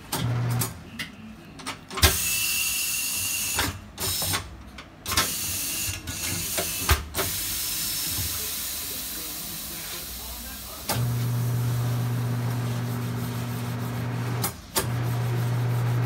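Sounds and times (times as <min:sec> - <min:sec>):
compressed air hissing: 0:05.3 - 0:13.8.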